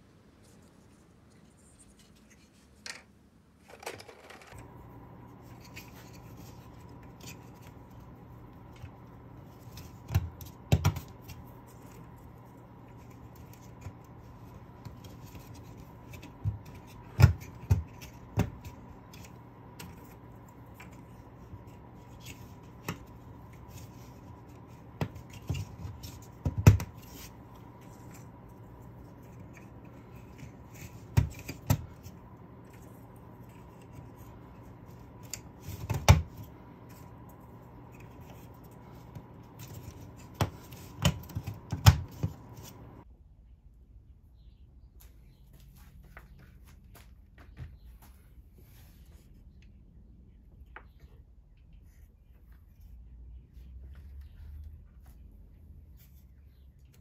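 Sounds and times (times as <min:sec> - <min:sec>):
steady hum: 0:00.0 - 0:44.3
wooden pieces clicking and scraping: 0:02.0 - 0:04.7.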